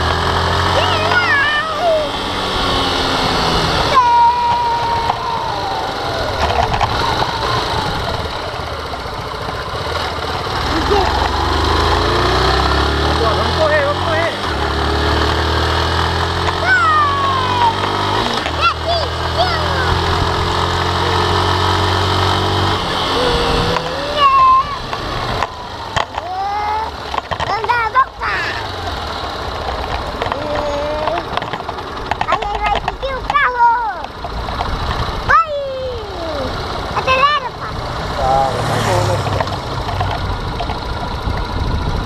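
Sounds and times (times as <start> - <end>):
small motorbike engine running: 0.0 - 42.0
child squealing: 0.7 - 2.2, 3.8 - 7.6, 16.6 - 20.1, 23.0 - 24.9, 26.2 - 27.0
wind noise: 40.5 - 42.0.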